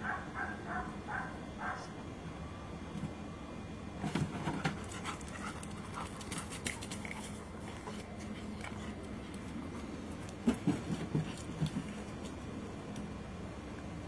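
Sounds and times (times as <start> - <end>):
dog panting: 4.6 - 12.1
paws knocking on plastic: 10.3 - 12.4.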